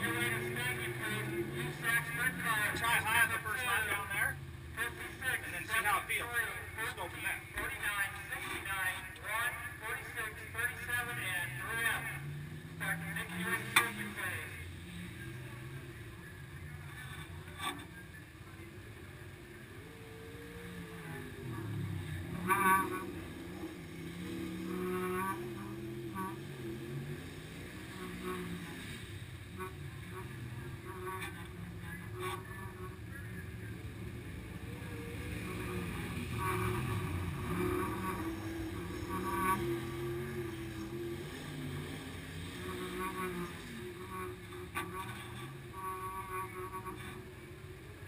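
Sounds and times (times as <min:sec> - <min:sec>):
engines rumbling: 0:00.0 - 0:48.0.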